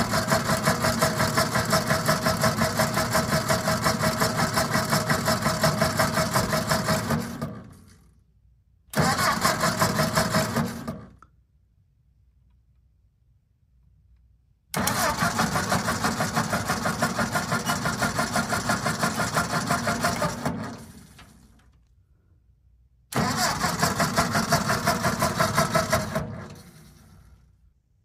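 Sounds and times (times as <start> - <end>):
toy chugging engine sound effect: 14.9 - 20.5.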